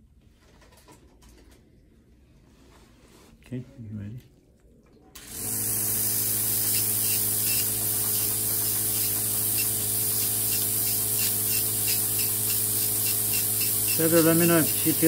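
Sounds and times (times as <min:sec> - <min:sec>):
nail drill motor hum: 0:05.2 - 0:15.0
spray hiss: 0:05.8 - 0:15.0.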